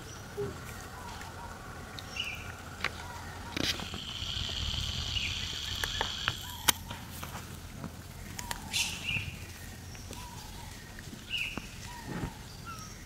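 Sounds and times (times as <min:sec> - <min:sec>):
steady high buzz: 0:00.0 - 0:06.9
low rumble: 0:00.0 - 0:07.7.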